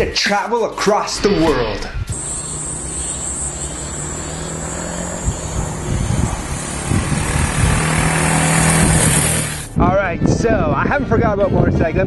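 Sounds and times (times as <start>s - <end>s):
motorcycle engine passing: 1.4s - 9.8s.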